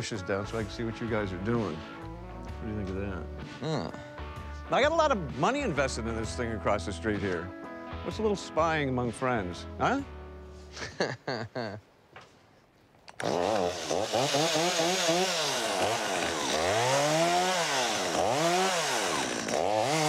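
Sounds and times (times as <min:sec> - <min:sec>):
chainsaw revving: 0:13.1 - 0:20.0.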